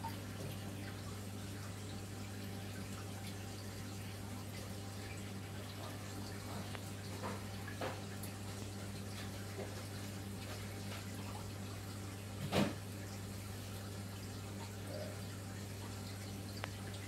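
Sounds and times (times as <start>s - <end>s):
aquarium pump hum: 0.0s - 17.0s
water trickling: 0.0s - 17.0s.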